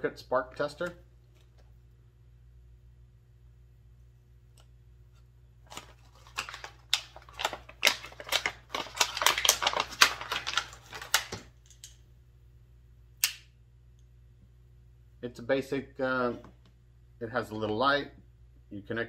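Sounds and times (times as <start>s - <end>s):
packaging crackling and clicking: 5.7s - 12.0s.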